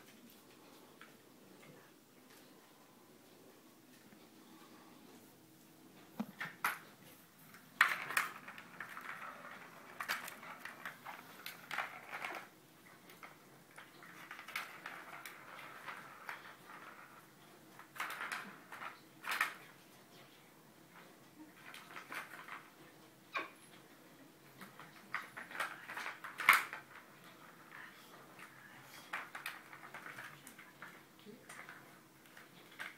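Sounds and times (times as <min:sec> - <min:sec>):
plastic ball rolling and clattering: 0:06.2 - 0:19.8, 0:20.9 - 0:23.5, 0:24.4 - 0:32.9.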